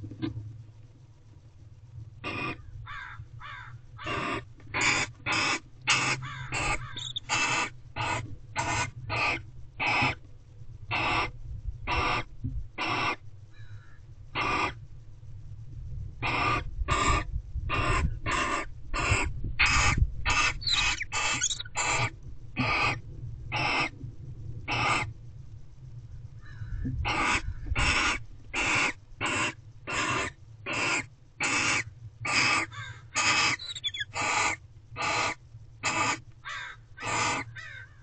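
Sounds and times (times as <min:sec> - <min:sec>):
owls hissing: 0:02.2 - 0:02.6, 0:04.0 - 0:10.2, 0:10.9 - 0:11.3, 0:11.9 - 0:13.2, 0:14.4 - 0:14.8, 0:16.2 - 0:23.9, 0:24.7 - 0:25.1, 0:27.0 - 0:37.8.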